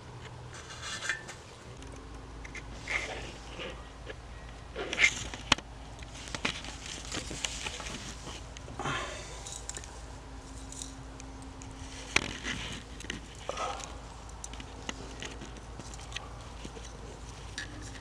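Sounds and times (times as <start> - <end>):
hands rustling through debris: 4.8 - 18.0.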